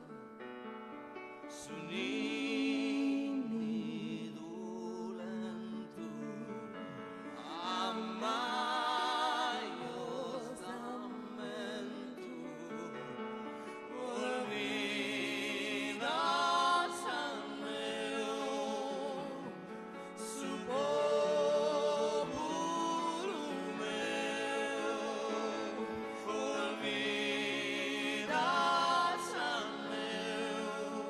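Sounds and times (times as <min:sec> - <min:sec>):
piano accompaniment: 0:00.0 - 0:31.0.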